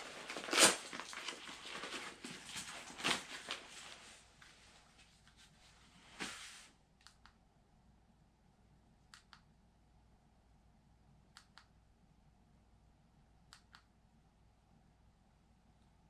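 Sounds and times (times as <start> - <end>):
handling rustle: 0.0 - 5.2.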